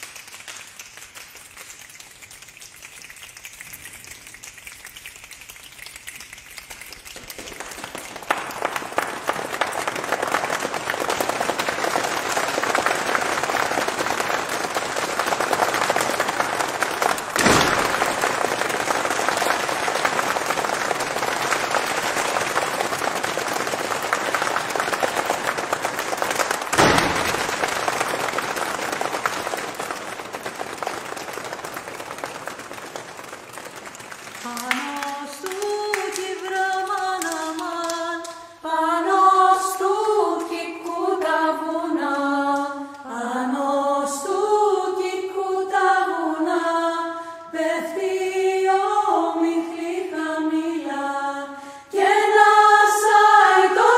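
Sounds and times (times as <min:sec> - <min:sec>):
audience applauding: 0:00.0 - 0:38.4.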